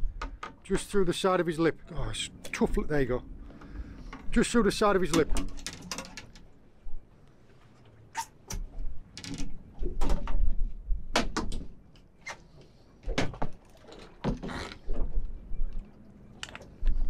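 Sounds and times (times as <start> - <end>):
fishing gear knocking and clattering: 4.0 - 6.5.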